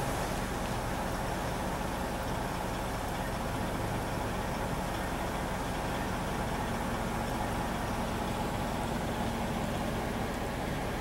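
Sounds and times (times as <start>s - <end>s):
constant hiss: 0.0s - 11.0s
low engine hum: 0.0s - 11.0s.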